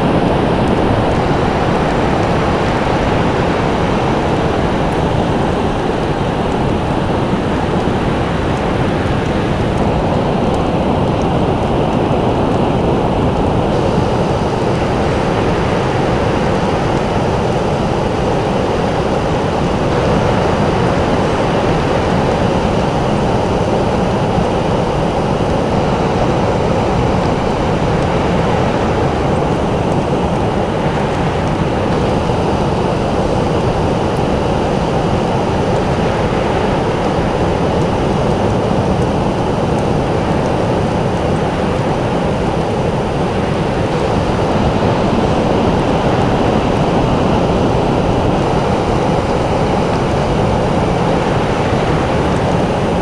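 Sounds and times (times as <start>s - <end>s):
ocean surf roaring: 0.0s - 53.0s.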